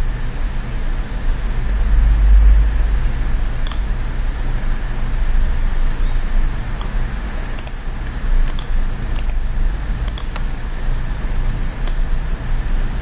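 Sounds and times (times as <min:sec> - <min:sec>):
low hum and hiss: 0:00.0 - 0:13.0
computer mouse clicks: 0:03.6 - 0:04.0, 0:07.6 - 0:10.5, 0:11.8 - 0:12.1.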